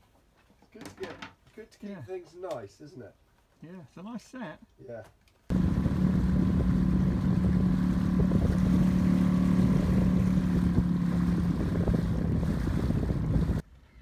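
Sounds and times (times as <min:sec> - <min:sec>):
outboard motor humming: 0:05.5 - 0:13.6.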